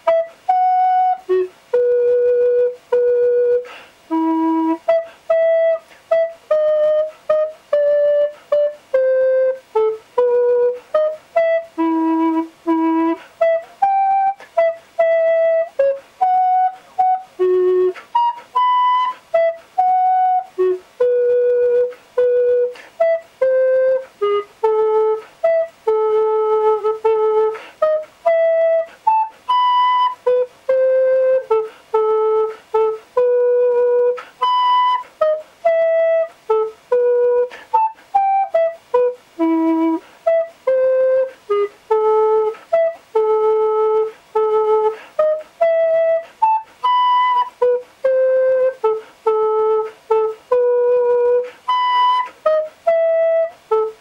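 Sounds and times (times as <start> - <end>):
recorder playing detached notes: 0.0 - 54.0.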